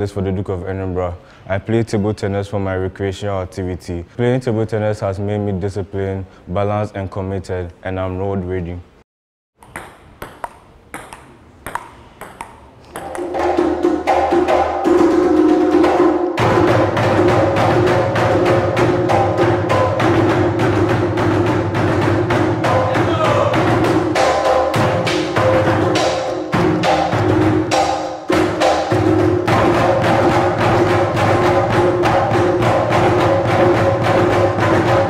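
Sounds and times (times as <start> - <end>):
sticks striking barrel drum: 9.6 - 35.0
hand drums: 13.0 - 35.0
deep drum tones: 13.2 - 35.0.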